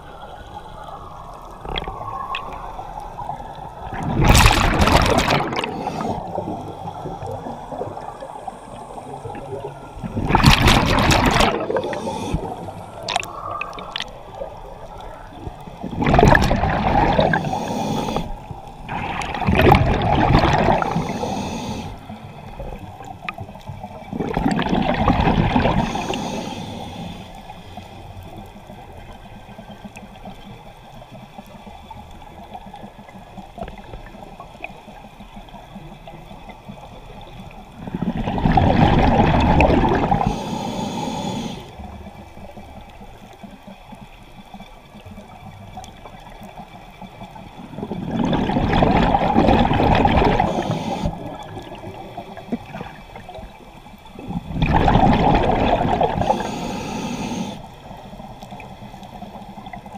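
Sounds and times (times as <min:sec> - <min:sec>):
underwater hiss: 0:00.0 - 0:29.2, 0:36.8 - 0:42.4, 0:48.4 - 0:59.9
exhaust bubbles rushing: 0:03.9 - 0:05.8, 0:09.3 - 0:14.2, 0:15.8 - 0:17.4, 0:18.9 - 0:21.0, 0:24.1 - 0:25.8, 0:37.9 - 0:40.3, 0:47.7 - 0:50.7, 0:54.4 - 0:56.3.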